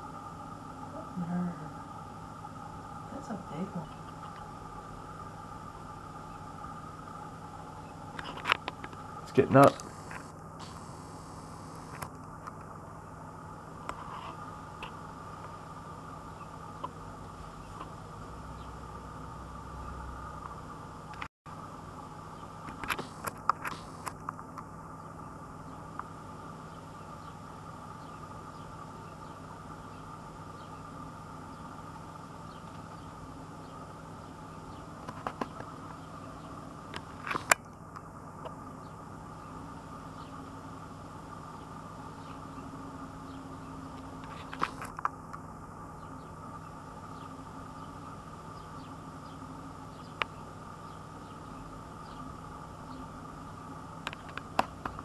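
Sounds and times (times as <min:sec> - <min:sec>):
low hum and hiss: 0:00.0 - 0:55.0
sharp clicks: 0:22.7 - 0:24.6.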